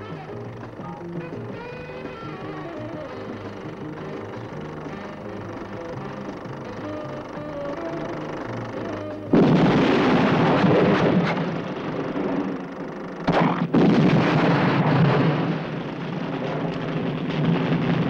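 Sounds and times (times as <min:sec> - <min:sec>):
light music: 0:00.0 - 0:09.4
loud rumbling blast: 0:00.0 - 0:18.0.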